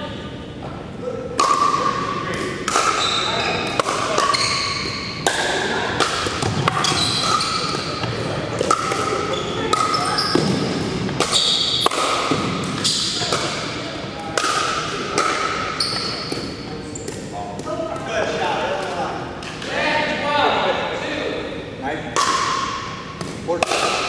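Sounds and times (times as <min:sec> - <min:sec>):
sneaker squeaks on hardwood floor: 0:03.0 - 0:05.2, 0:06.8 - 0:08.1, 0:09.2 - 0:10.7, 0:11.3 - 0:11.9, 0:15.8 - 0:17.1
paddles hitting plastic ball: 0:05.2 - 0:13.6.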